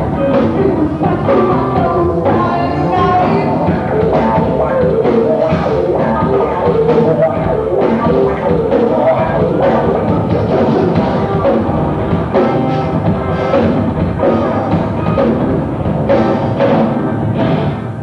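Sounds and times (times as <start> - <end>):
drum kit: 0.0 - 18.0
electric guitar: 0.0 - 18.0.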